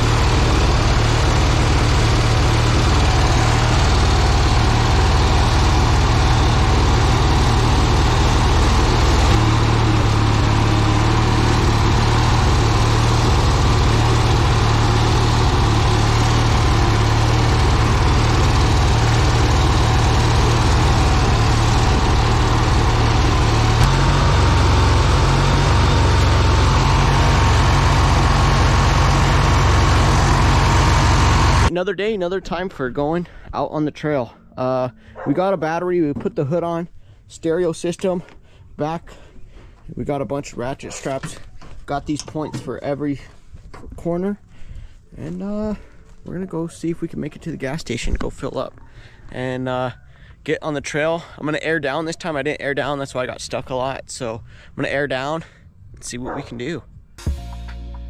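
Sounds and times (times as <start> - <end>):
lawn mower engine running: 0.0 - 31.7.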